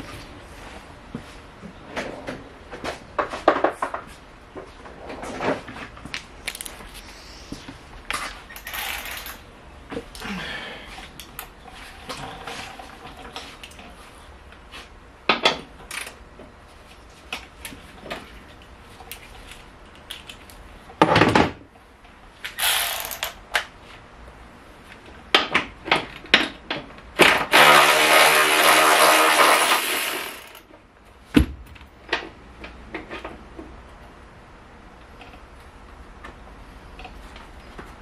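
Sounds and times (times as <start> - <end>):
exhaust air hissing: 6.9 - 8.0
air ratchet undoing bolt: 22.5 - 23.4
metal parts clicking and knocking: 22.6 - 23.4.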